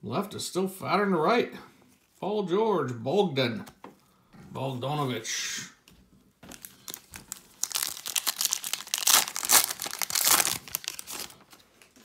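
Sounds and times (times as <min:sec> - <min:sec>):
foil wrapper crinkling: 0:06.4 - 0:12.0.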